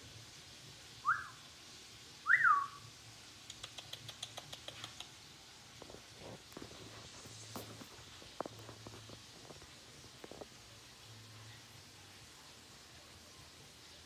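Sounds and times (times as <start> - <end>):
light clicks: 3.4 - 5.2.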